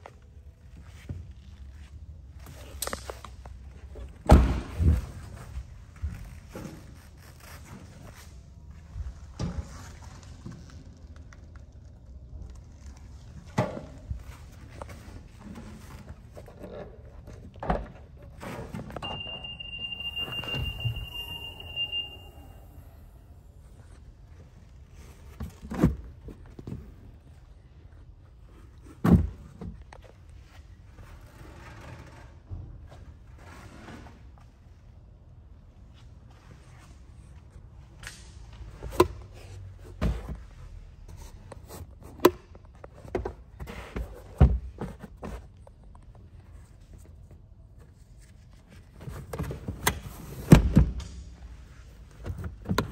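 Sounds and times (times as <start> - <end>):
high-pitched electronic warning tone: 19.0 - 23.1.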